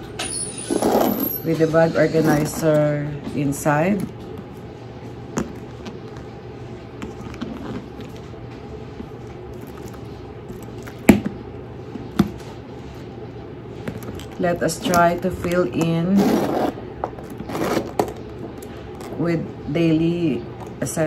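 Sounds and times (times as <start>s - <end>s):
handling leather handbag: 2.2s - 11.3s, 13.8s - 19.3s.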